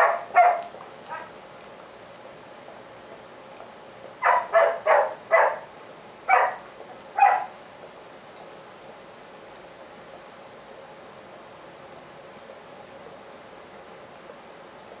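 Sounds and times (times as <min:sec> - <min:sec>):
dog barking: 0:00.0 - 0:01.3, 0:04.2 - 0:05.7, 0:06.3 - 0:06.6, 0:07.2 - 0:07.6.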